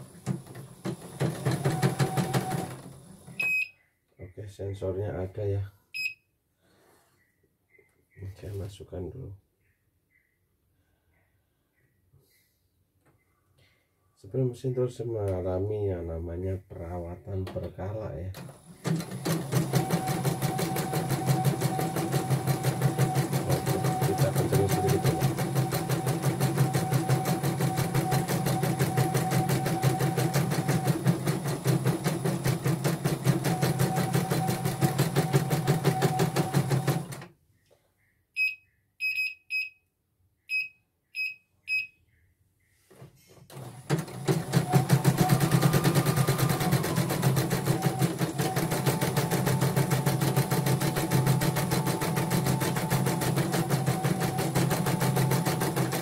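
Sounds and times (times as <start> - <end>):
embroidery machine stitching: 0.0 - 3.4, 17.5 - 37.3, 43.5 - 56.0
short high beeps: 38.4 - 39.8.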